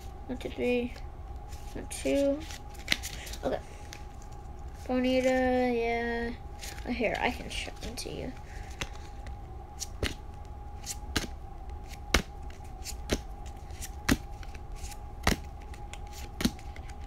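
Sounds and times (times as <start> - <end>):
faint steady hum: 0.0 - 17.0
trading cards snapping: 2.5 - 3.4, 9.8 - 10.2, 10.8 - 17.0.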